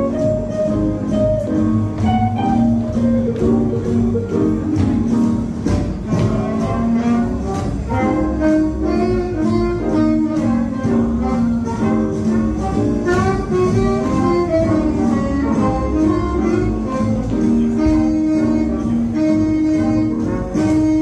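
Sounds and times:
jazz dance music: 0:00.0 - 0:21.0.

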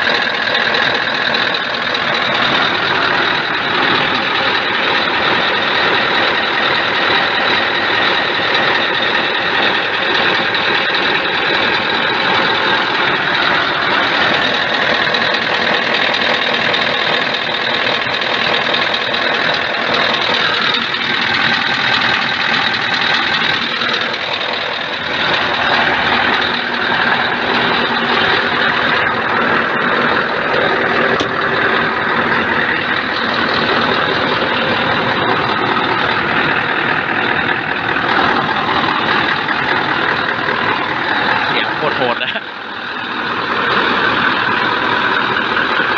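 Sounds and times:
diesel engine idling: 0:00.0 - 0:45.9.

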